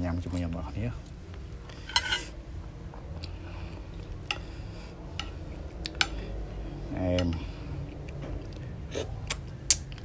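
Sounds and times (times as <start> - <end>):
low steady hum: 0.0 - 10.0
metal spoon clinking on plate: 1.9 - 2.3.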